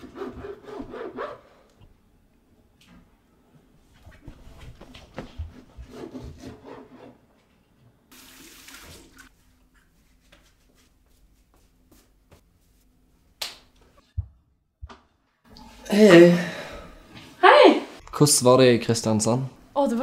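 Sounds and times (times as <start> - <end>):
water splashing and running: 8.1 - 9.3.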